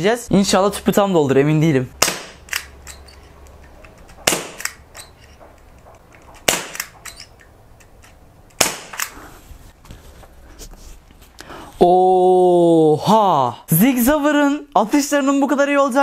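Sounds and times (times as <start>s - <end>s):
airsoft pistol shots: 2.0s - 2.7s, 4.2s - 4.8s, 6.4s - 7.0s, 8.6s - 9.1s.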